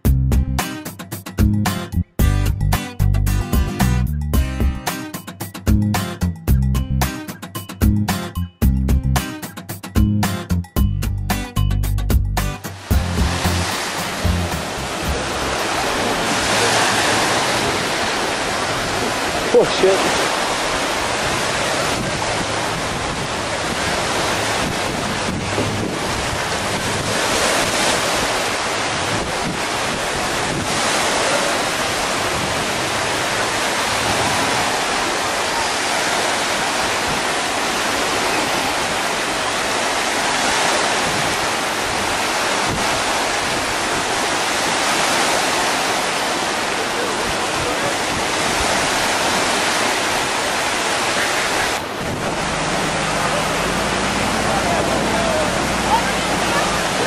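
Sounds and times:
surf washing in: 12.4 - 57.0
wind on microphone: 20.2 - 45.9, 47.3 - 57.0.

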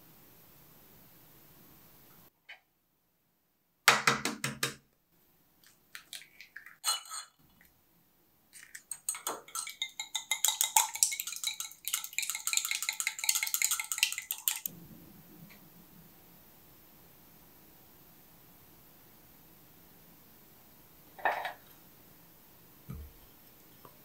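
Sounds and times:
egg cracking: 5.6 - 7.7, 8.5 - 14.7
whisk clicking on glass: 8.6 - 14.7.

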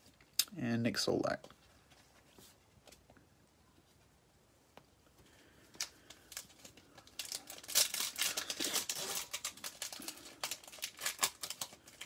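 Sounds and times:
foil wrapper crinkling: 5.7 - 12.0.

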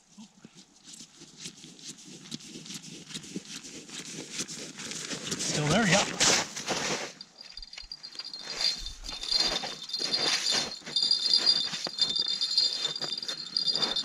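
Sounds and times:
small bells jingling: 5.4 - 14.0.

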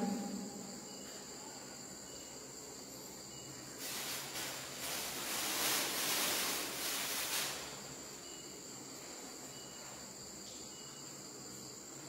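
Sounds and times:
crickets trilling: 0.0 - 12.0
plastic bag rustling: 3.8 - 8.2.

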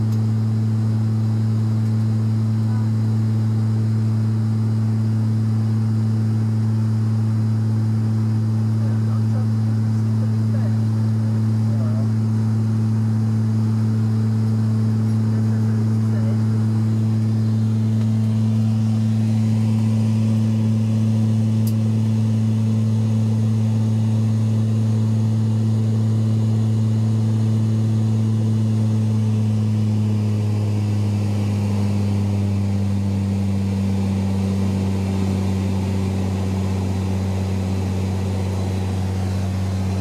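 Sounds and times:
propeller drone in aircraft cabin: 0.0 - 40.0.

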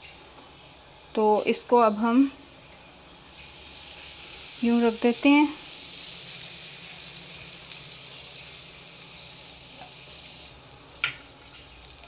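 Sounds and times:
bread sizzling on griddle: 3.0 - 12.0.

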